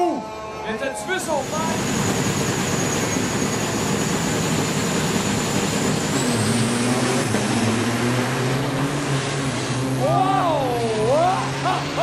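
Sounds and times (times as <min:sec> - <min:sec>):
diesel truck engines revving: 0:01.1 - 0:12.0.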